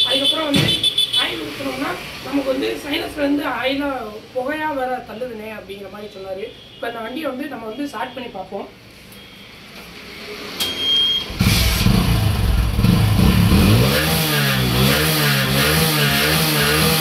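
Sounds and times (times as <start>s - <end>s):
motorcycle engine revving and idling: 11.3s - 17.0s.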